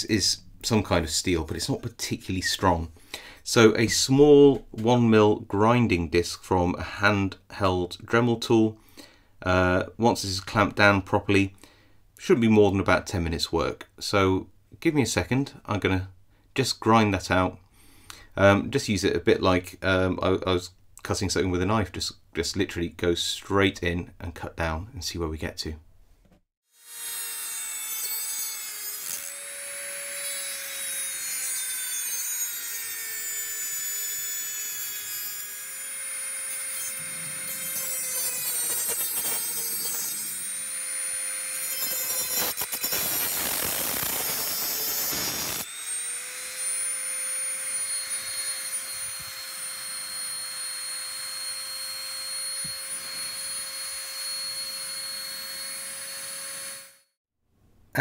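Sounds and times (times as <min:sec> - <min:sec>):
rotary tool motor whine: 0:29.1 - 0:57.2.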